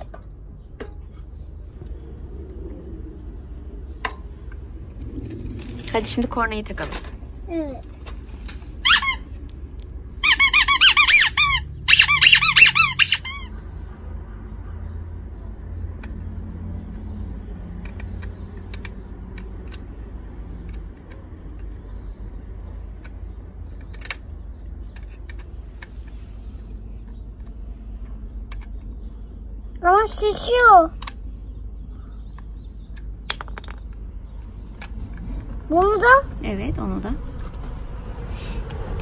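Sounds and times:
toy bulb horn honking: 10.2s - 13.5s.

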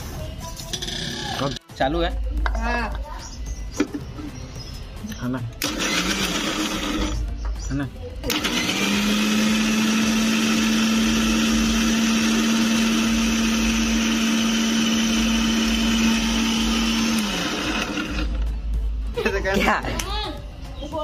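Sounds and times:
mixer grinder running: 5.6s - 7.2s, 8.3s - 18.4s
motor winding down: 5.6s - 7.2s, 8.3s - 18.4s.

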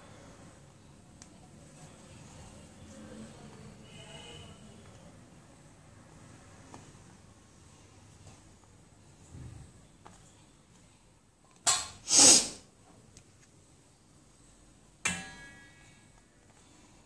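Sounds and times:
metal clank with ring: 15.1s - 16.1s.

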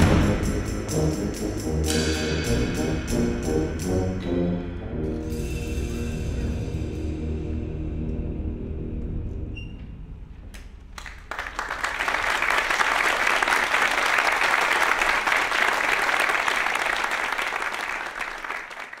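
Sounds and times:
audience applauding: 11.0s - 19.0s.

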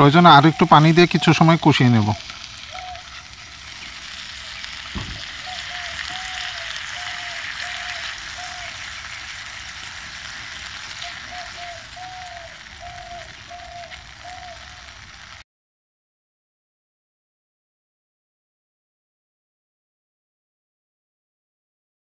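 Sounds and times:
masala sizzling in a frying pan: 0.0s - 15.4s
knock: 5.0s - 5.2s.

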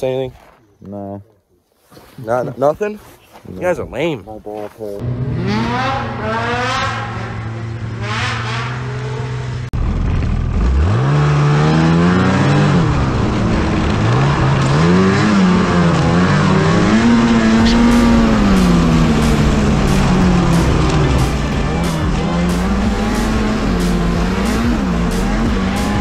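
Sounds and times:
snowmobile engine revving: 4.9s - 9.6s, 10.5s - 26.0s
steady rush of noise: 17.0s - 26.0s.

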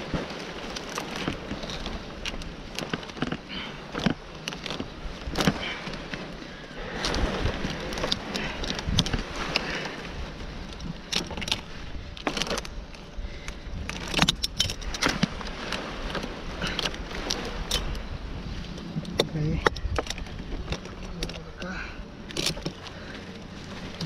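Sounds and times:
palm fronds rustling: 0.0s - 24.0s
wind rumble on microphone: 0.0s - 24.0s
metal climbing hardware clinking: 13.8s - 15.4s.

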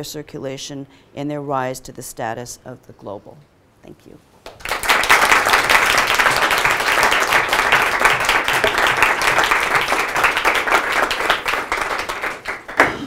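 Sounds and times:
audience applauding: 4.5s - 13.0s.

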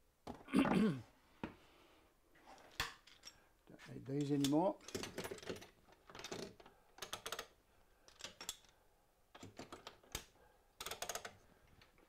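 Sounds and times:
small tools clicking and clattering: 2.5s - 3.5s, 4.1s - 12.0s.

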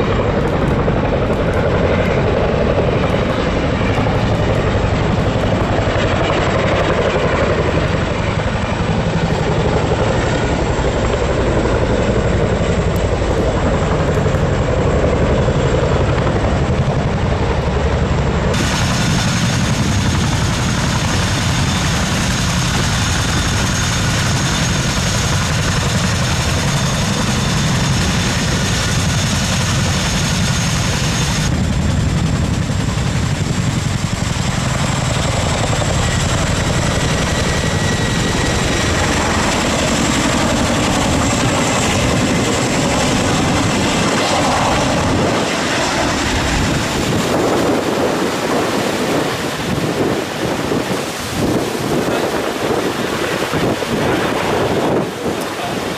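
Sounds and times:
helicopter rotor rumble: 0.0s - 55.9s
high turbine whine: 0.0s - 55.9s.

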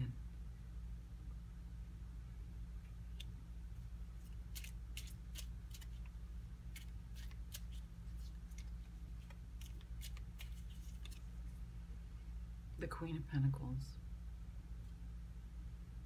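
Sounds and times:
low hum: 0.0s - 16.0s
cards clicking and snapping: 4.2s - 11.4s.

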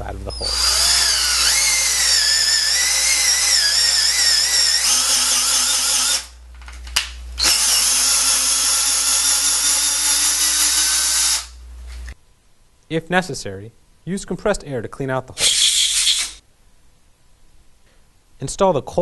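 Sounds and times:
power drill motor whine: 0.4s - 6.4s, 7.4s - 11.6s.

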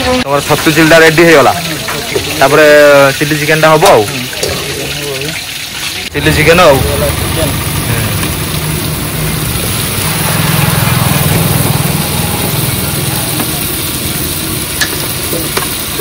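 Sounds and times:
low mechanical drone: 6.2s - 15.4s.

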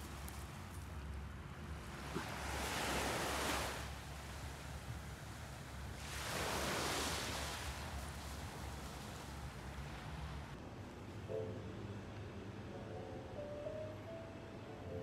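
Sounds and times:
small waves washing onto sand: 1.8s - 10.5s.

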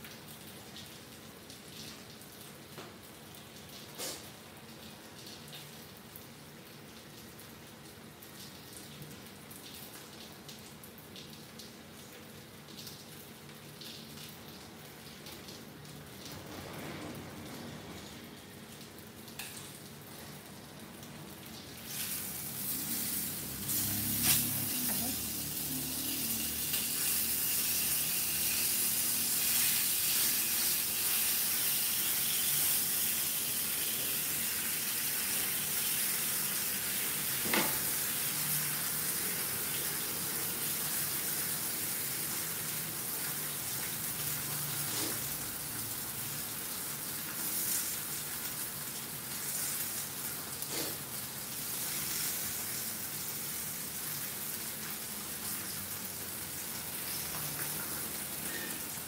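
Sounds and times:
fish sizzling in oil: 21.7s - 59.0s.

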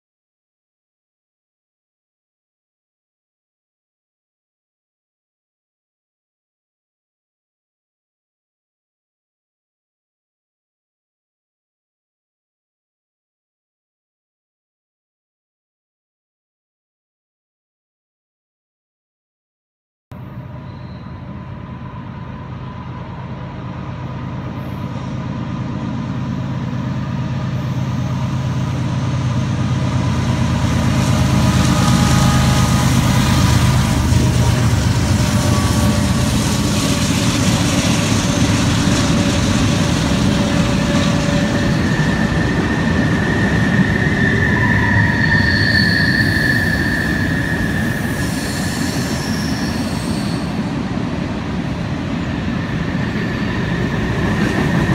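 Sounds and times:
high train wheel squeals: 20.2s - 51.1s, 52.1s - 54.9s
freight train rumble and rattle: 20.2s - 54.9s.

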